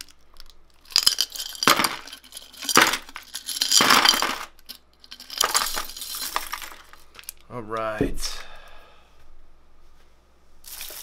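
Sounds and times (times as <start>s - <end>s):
metal jewelry rattling in glass vase: 0.8s - 7.3s.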